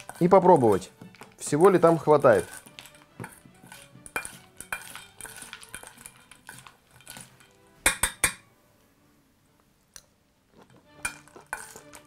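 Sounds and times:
spoon scraping a steel bowl: 0.0 - 7.7, 10.6 - 12.0.

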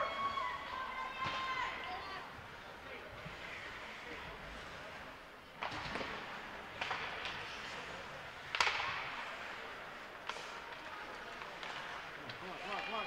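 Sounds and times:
arena background noise: 0.0 - 13.0
hockey stick hitting puck: 5.6 - 7.8, 8.4 - 9.4.

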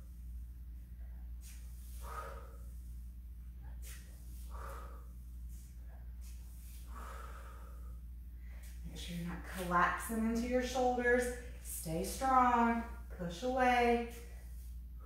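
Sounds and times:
steady low hum: 0.0 - 15.0
woman breathing hard: 0.8 - 8.8.

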